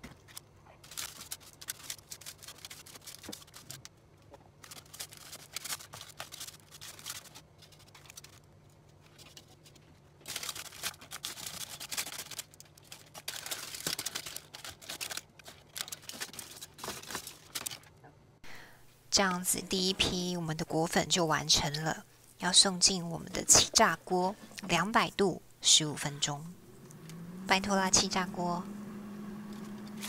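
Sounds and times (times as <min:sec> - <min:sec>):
aluminium foil crinkling: 0:00.0 - 0:18.0.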